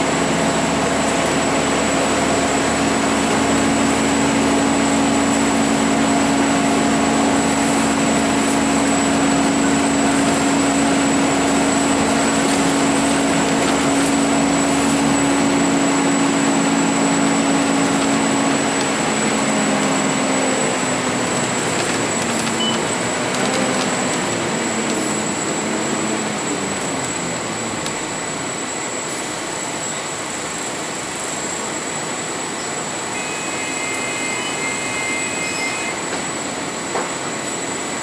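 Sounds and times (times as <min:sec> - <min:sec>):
bus engine drone: 0:00.0 - 0:38.0
road and tyre noise: 0:00.0 - 0:38.0
thin high whine: 0:32.6 - 0:36.1
faint high squeals: 0:33.2 - 0:36.0.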